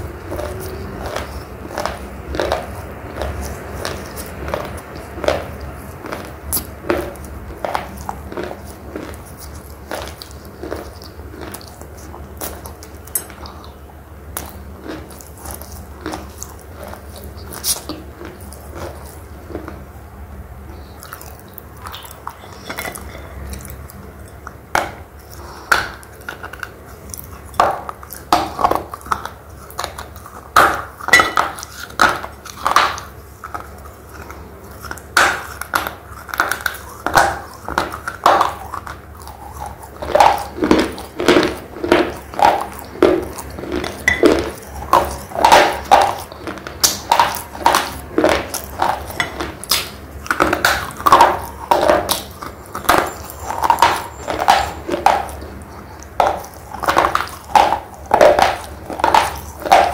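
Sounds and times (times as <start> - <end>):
person chewing crunchy slate pencil: 0.0 - 59.9.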